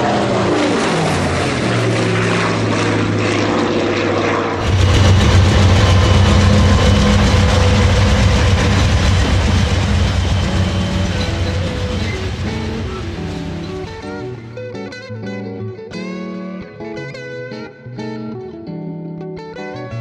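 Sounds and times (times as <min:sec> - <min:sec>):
propeller plane flying overhead: 0:00.0 - 0:14.6
locomotive diesel engines droning: 0:04.6 - 0:14.5.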